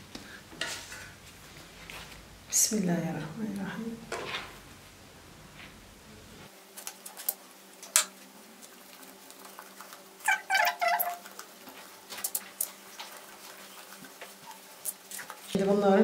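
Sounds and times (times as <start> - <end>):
cat meowing: 10.3 - 11.2.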